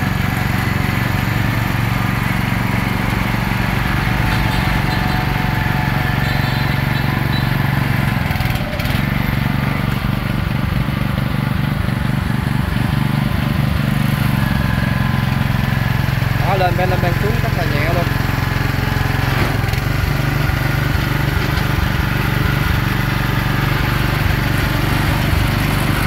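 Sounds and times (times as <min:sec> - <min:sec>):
dumper engine running: 0:00.0 - 0:26.0
hydraulic dump bed tipping: 0:18.0 - 0:26.0.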